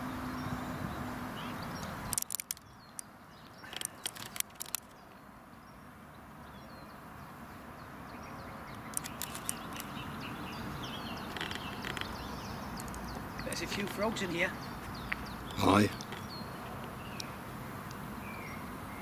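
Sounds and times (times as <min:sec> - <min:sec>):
outdoor background hiss: 0:00.0 - 0:19.0
songbirds chirping: 0:00.0 - 0:19.0
sharp clicks: 0:01.8 - 0:05.0, 0:08.7 - 0:10.0, 0:11.2 - 0:14.1.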